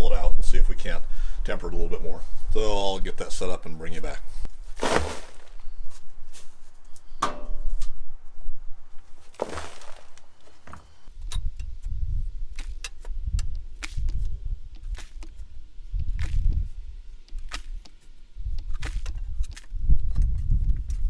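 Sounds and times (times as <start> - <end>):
sand pouring onto plastic tarp: 4.7 - 5.7, 9.3 - 10.2.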